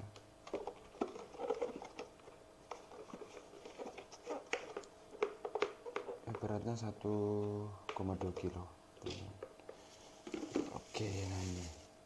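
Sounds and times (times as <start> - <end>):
plastic housing clicks and rubbing: 0.4 - 6.5.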